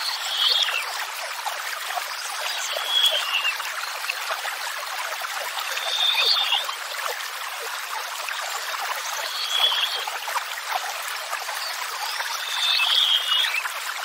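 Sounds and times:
songbird whistling: 12.6 - 13.6.

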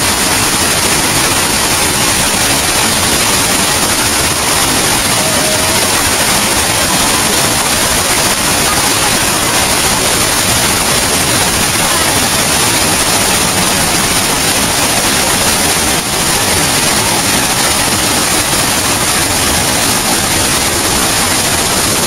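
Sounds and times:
water rushing over boulders: 0.0 - 22.0.

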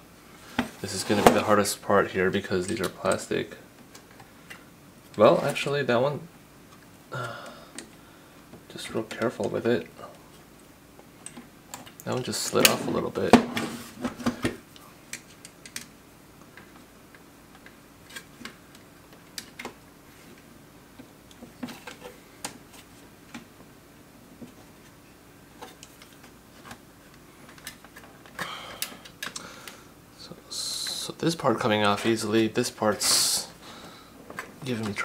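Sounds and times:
plastic parts clicking: 15.1 - 15.9.

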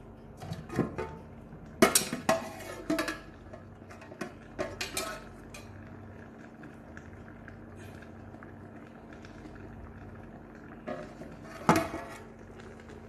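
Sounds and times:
metal pot lid clanking: 0.4 - 1.2, 1.8 - 5.3.

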